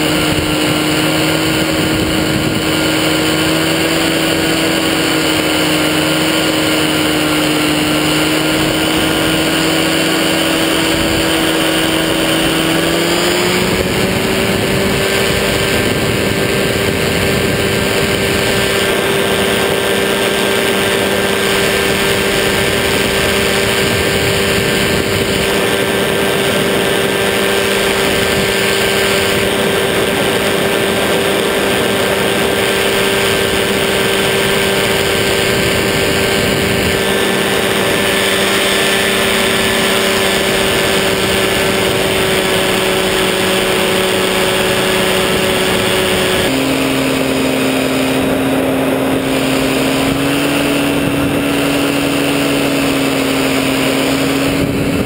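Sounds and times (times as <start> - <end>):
engine and propeller droning: 0.0 - 55.0.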